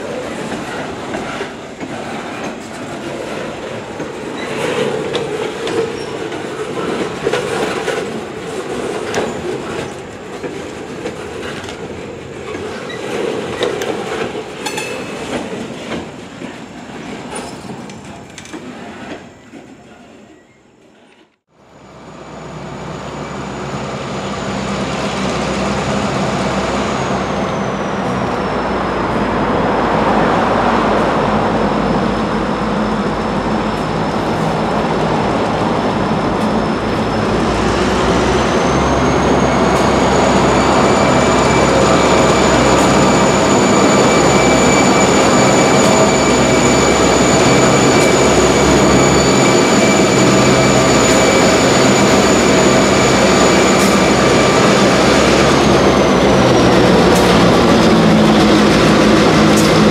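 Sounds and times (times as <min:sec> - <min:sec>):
diesel locomotive engines droning: 0:00.0 - 0:59.9.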